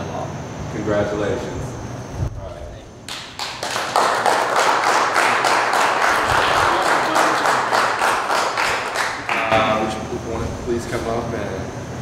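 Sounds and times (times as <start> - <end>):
audience applauding: 3.1 - 9.7.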